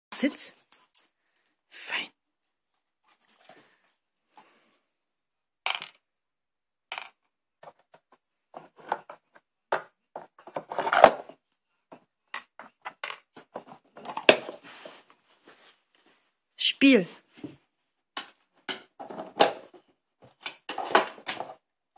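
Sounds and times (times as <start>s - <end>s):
plastic lids clicking and clattering: 6.9s - 11.4s, 12.2s - 14.6s, 18.2s - 21.6s.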